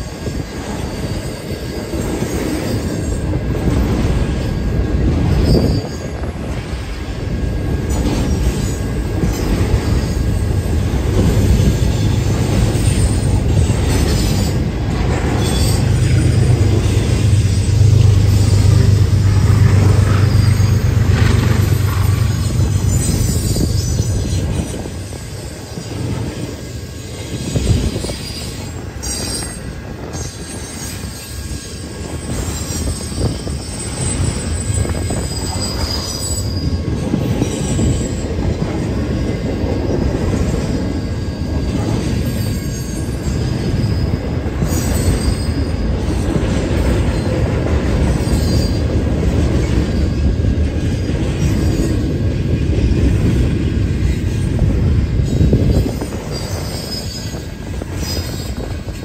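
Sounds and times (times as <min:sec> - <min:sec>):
train wheels rumbling on rail: 0:00.0 - 0:59.0
high wheel squeals: 0:04.4 - 0:06.3, 0:09.8 - 0:38.3, 0:40.4 - 0:46.4, 0:48.1 - 0:49.0, 0:54.0 - 0:59.0.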